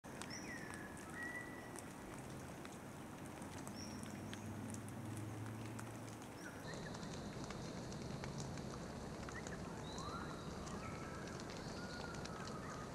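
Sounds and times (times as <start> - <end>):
water splashing: 0.0 - 12.9
birds whistling: 0.3 - 1.6.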